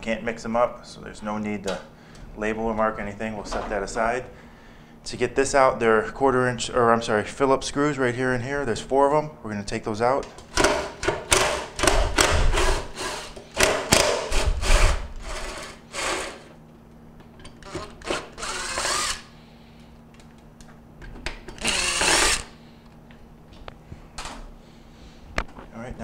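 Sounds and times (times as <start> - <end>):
cordless drill motor spinning: 12.2 - 13.4, 14.3 - 16.5, 17.6 - 19.4, 21.6 - 22.6.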